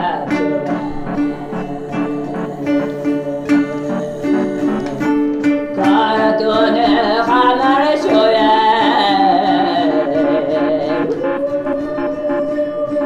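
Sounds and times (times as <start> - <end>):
steady low drone: 0.0 - 5.9, 9.4 - 13.0
plucked balalaika notes: 0.0 - 13.0
woman singing wavering phrase: 5.8 - 13.0.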